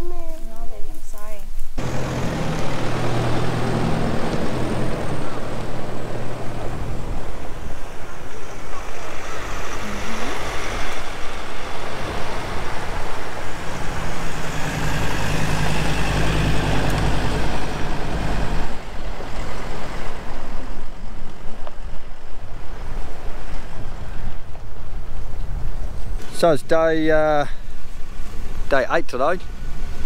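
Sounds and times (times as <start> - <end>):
road and wind noise: 0.0 - 30.0
vehicle driving past on dirt: 1.8 - 21.5.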